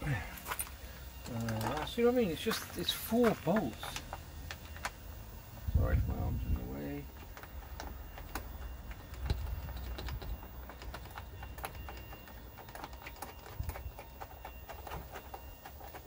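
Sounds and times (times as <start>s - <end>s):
low rumble: 5.1s - 6.8s.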